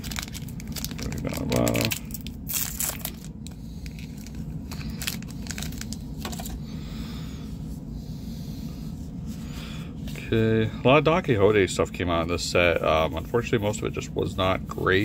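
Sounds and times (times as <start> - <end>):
foil wrapper tearing and crackling: 0.0 - 6.5
cards crinkling and rustling: 0.0 - 6.6.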